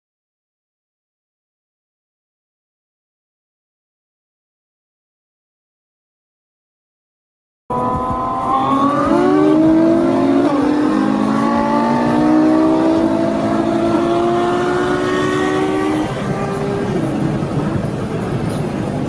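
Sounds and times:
sports car engine accelerating: 7.7 - 19.0.

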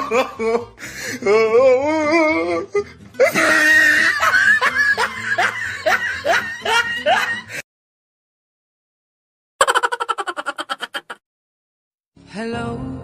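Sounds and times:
person laughing: 0.0 - 0.7, 3.2 - 7.6, 9.6 - 11.2
background music: 0.0 - 7.6, 12.2 - 13.0.

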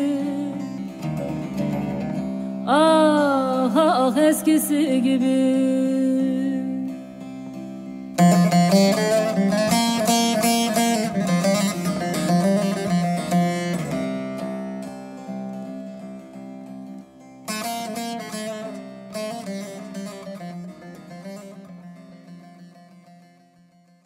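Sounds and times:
plucked-string melody: 0.0 - 24.0.

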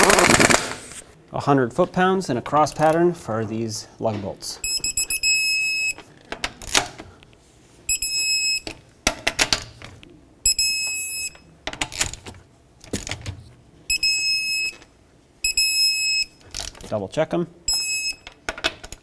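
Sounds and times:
torque wrench beeping: 4.6 - 6.0, 10.4 - 11.5, 13.9 - 14.8, 15.4 - 16.7, 17.7 - 18.3.

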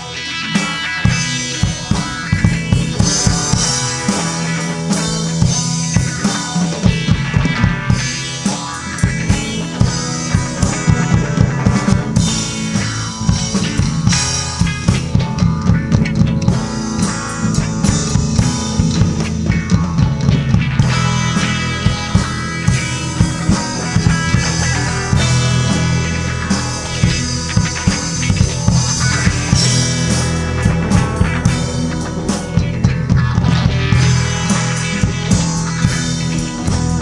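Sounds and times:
electric guitar: 0.0 - 37.0
bass drum: 1.0 - 37.0.

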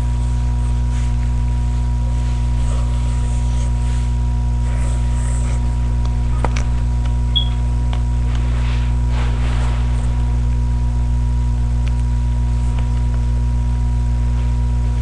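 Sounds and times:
soft scratches: 0.0 - 6.8, 8.2 - 10.6
low electrical hum: 0.0 - 15.0.

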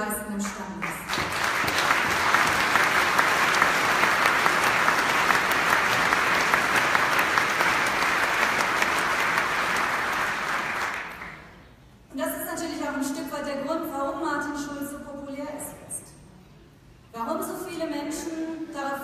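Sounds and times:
large audience applauding: 1.0 - 11.6.

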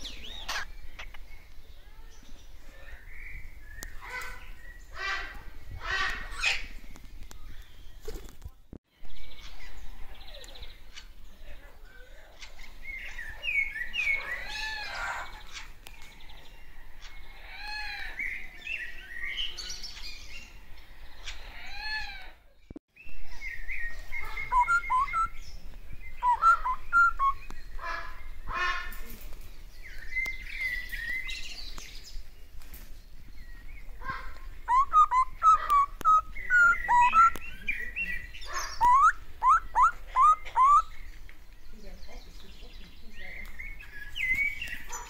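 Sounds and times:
parrot chirping and warbling: 0.2 - 1.2, 23.6 - 25.4, 26.2 - 28.6, 34.0 - 41.0.

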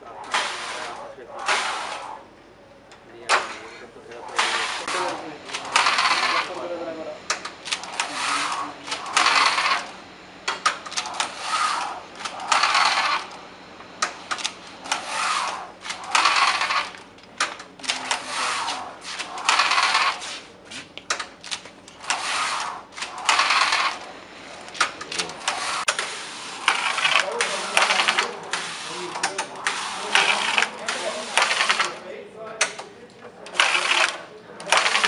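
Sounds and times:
knitting machine carriage rasping: 0.1 - 2.2, 4.2 - 6.6, 7.3 - 13.4, 14.2 - 20.5, 21.1 - 32.0, 33.5 - 35.0
sharp carriage clicks: 7.3 - 9.9, 14.0 - 20.2.

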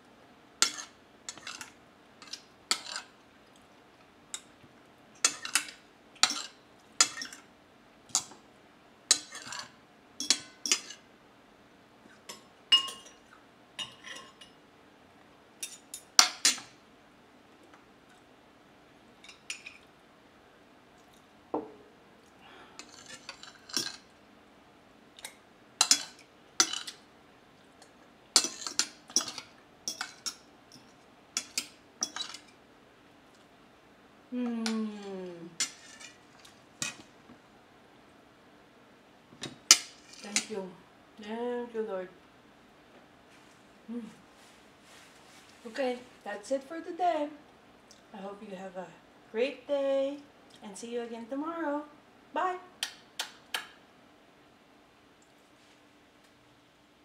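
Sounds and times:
cutlery clinking and scraping on a plate: 0.6 - 3.2, 5.2 - 7.5, 9.1 - 11.0, 12.2 - 13.2, 13.8 - 14.6, 15.6 - 16.8, 19.2 - 19.9, 22.8 - 24.1, 25.8 - 27.0, 28.4 - 32.6, 35.6 - 37.1, 39.5 - 40.5.

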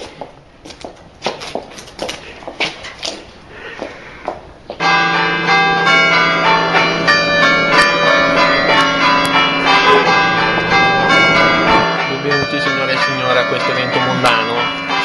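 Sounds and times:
church bells ringing: 4.8 - 15.0.

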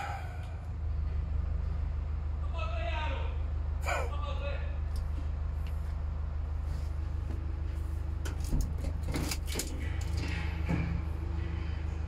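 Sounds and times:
vehicle engine humming: 0.0 - 12.0
clunks and rattles: 6.9 - 12.0.

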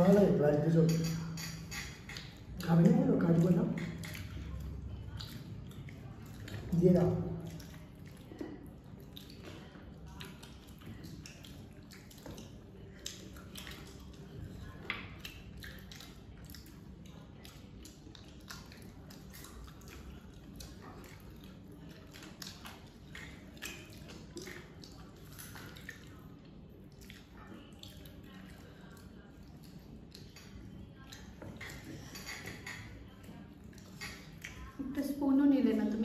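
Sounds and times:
chewing and wet mouth sounds: 0.0 - 36.0.

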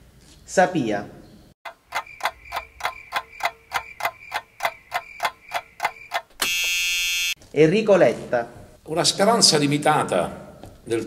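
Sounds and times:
clock ticking: 1.7 - 6.4.

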